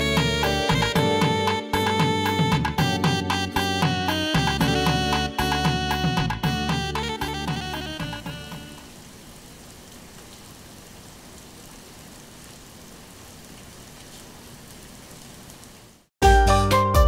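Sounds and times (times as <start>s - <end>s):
music: 0.0s - 8.9s, 16.2s - 17.0s
steady rain: 0.0s - 16.1s.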